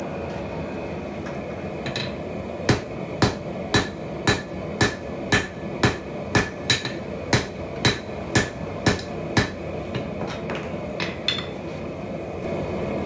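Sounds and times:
hammer striking metal on anvil: 0:01.9 - 0:10.4.

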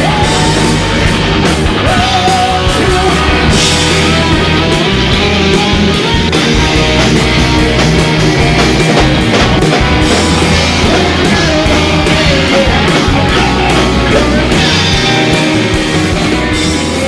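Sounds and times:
man singing: 0:00.0 - 0:05.4, 0:10.4 - 0:15.9
heavy metal band playing: 0:00.0 - 0:17.0.

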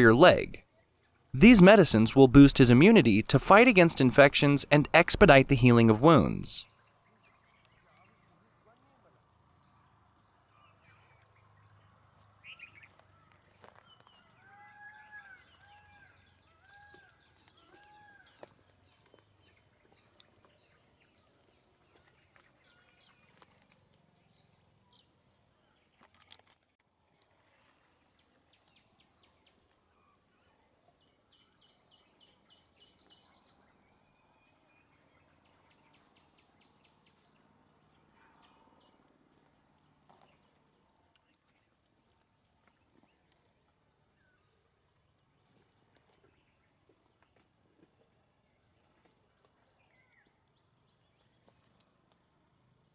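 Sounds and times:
small clicks and rustles: 0:21.8 - 0:24.7, 0:25.8 - 0:29.9, 0:45.4 - 0:49.6, 0:51.2 - 0:52.9.

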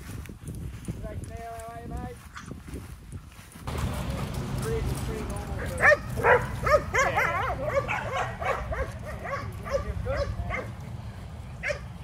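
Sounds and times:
dogs barking and yipping: 0:03.7 - 0:12.0.

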